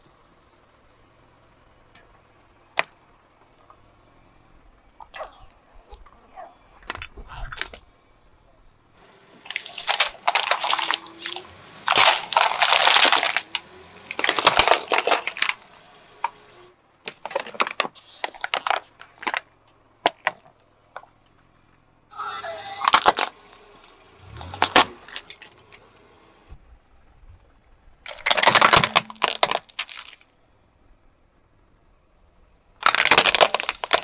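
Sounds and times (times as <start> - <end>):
car tyre crushing objects: 0.0 - 22.0, 22.7 - 31.0, 32.6 - 34.0
metal screws crunching and scraping: 9.3 - 16.5, 17.1 - 21.1, 22.9 - 25.9, 28.0 - 30.4, 32.8 - 34.0.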